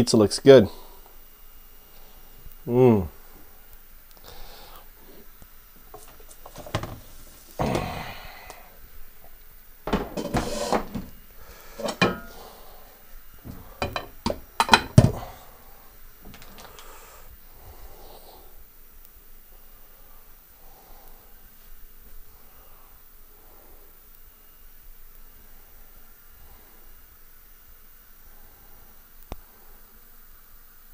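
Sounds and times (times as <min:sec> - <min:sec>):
oven rack scraping: 0:09.9 - 0:11.2, 0:11.8 - 0:12.4.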